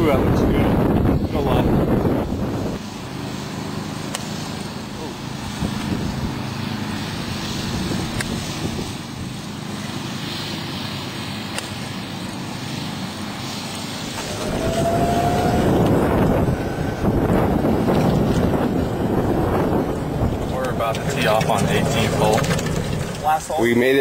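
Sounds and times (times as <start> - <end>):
wind rushing on microphone: 0.0 - 3.0, 5.0 - 9.6, 13.5 - 24.0
wind rumble: 0.0 - 4.1, 5.0 - 10.5, 12.7 - 24.0.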